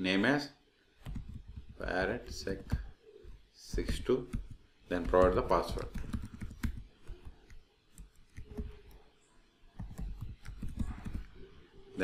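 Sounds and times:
typing on a computer keyboard: 0:01.0 - 0:02.9, 0:03.7 - 0:09.0, 0:09.8 - 0:11.5.

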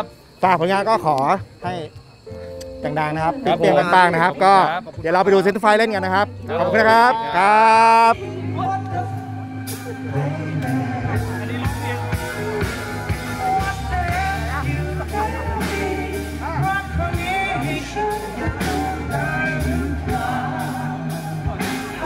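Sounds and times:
bass guitar: 0:01.4 - 0:22.0
male voices singing: 0:06.2 - 0:22.0
electric guitar: 0:06.3 - 0:22.0
steady drum beat: 0:09.7 - 0:22.0.

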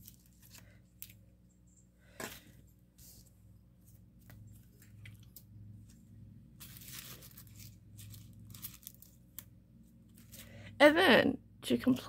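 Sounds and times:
packaging rustling and crinkling: 0:00.0 - 0:01.2, 0:06.6 - 0:10.5.

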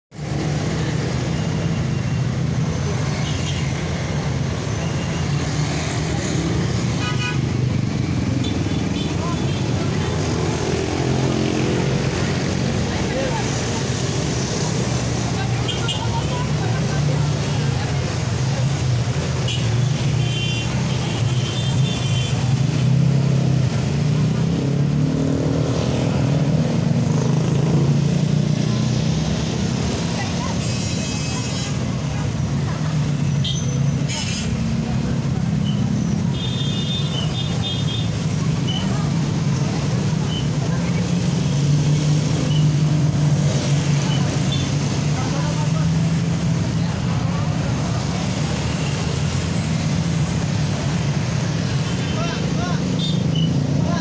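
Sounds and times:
cars passing: 0:00.1 - 0:54.0
motorcycles passing: 0:00.2 - 0:54.0
people talking: 0:08.4 - 0:19.3, 0:27.2 - 0:36.4, 0:38.3 - 0:42.6, 0:43.4 - 0:50.8, 0:51.7 - 0:54.0.

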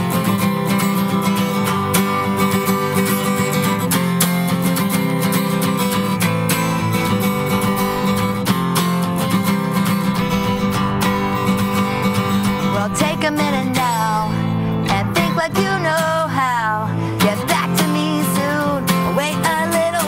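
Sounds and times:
acoustic guitar strumming: 0:00.0 - 0:20.0.

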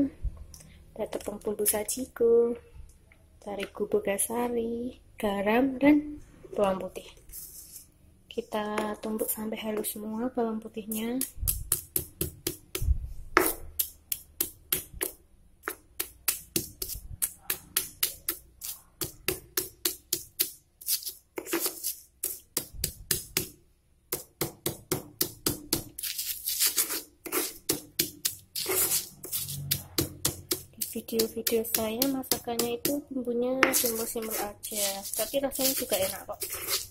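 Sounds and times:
stone pestle pounding in mortar: 0:11.2 - 0:20.6, 0:22.5 - 0:26.0, 0:27.3 - 0:33.0.

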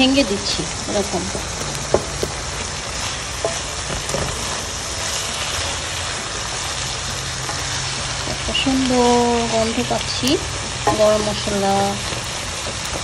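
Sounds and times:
curry sizzling in a pan: 0:00.0 - 0:13.0
wooden spatula stirring: 0:01.3 - 0:08.9.

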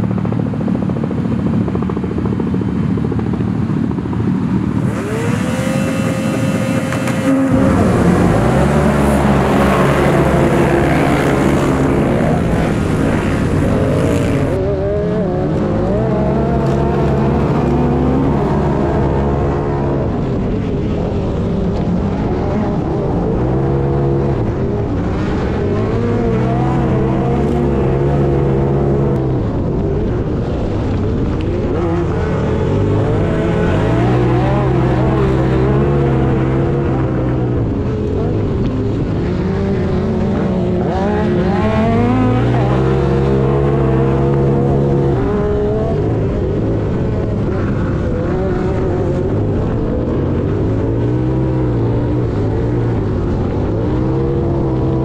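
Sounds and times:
utv engine running hard: 0:00.0 - 0:55.0.

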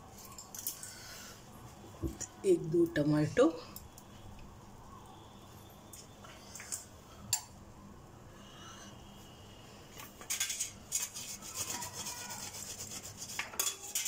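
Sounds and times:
utensils clinking against dishes: 0:10.1 - 0:12.4, 0:13.2 - 0:14.0.

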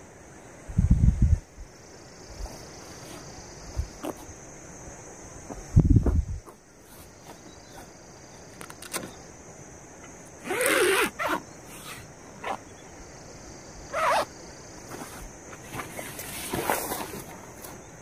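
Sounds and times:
tent zipper zipping: 0:10.4 - 0:12.6, 0:13.9 - 0:14.3, 0:14.9 - 0:17.3.

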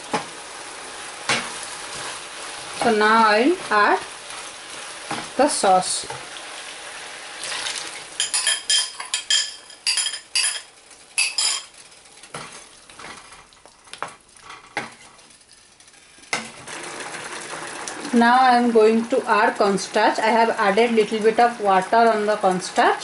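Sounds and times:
chicken sizzling in a pan: 0:00.0 - 0:23.0
wooden spoon stirring in pan: 0:00.1 - 0:07.1, 0:11.6 - 0:22.8.

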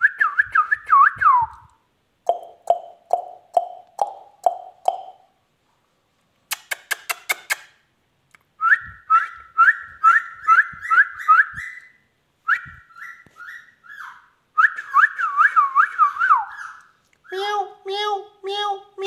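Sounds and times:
sharp clicks: 0:06.5 - 0:07.7
parakeet whistling: 0:08.8 - 0:16.9.

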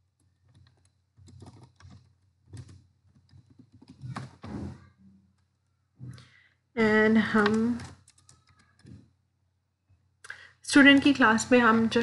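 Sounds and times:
computer keyboard typing: 0:00.1 - 0:05.7, 0:07.2 - 0:09.1.

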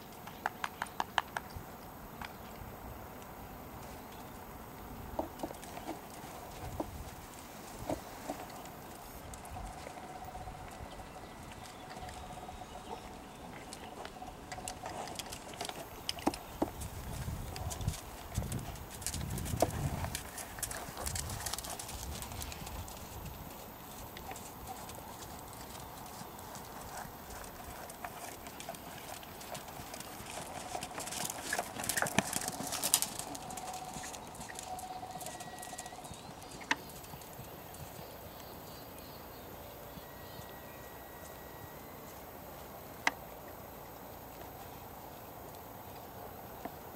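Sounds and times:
hoofbeats on sand: 0:15.8 - 0:38.8.

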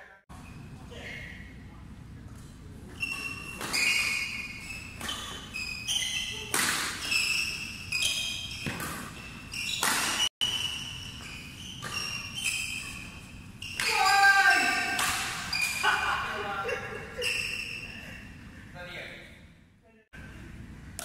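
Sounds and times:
shoes squeaking on court: 0:02.4 - 0:16.0, 0:17.2 - 0:18.2
rackets hitting shuttlecock: 0:03.0 - 0:16.0.

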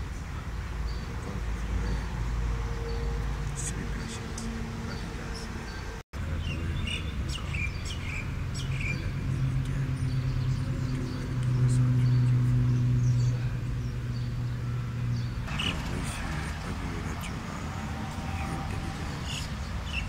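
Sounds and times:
birds chirping: 0:00.0 - 0:20.0
steady low hum: 0:00.0 - 0:20.0.

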